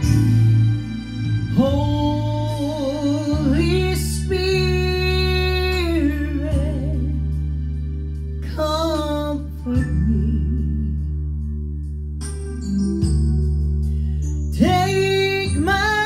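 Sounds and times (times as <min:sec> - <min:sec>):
instrumental backing track: 0:00.0 - 0:16.0
woman singing into microphone: 0:01.5 - 0:07.3, 0:08.4 - 0:11.1, 0:14.5 - 0:16.0.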